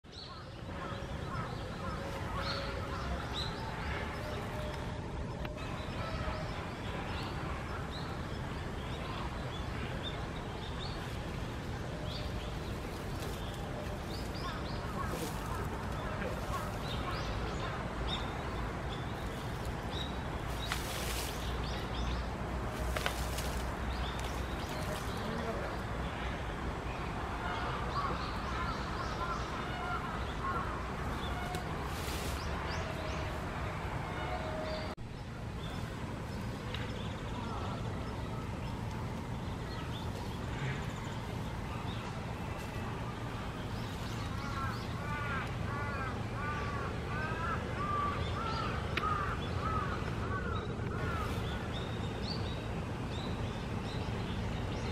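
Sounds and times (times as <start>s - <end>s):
small birds chirping: 0.1s - 26.2s
low outdoor rumble: 0.1s - 54.9s.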